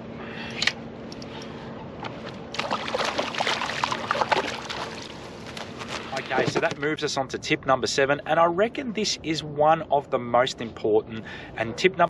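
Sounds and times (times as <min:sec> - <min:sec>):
faint hum: 0:00.0 - 0:12.0
water splashing and sloshing: 0:02.0 - 0:06.8.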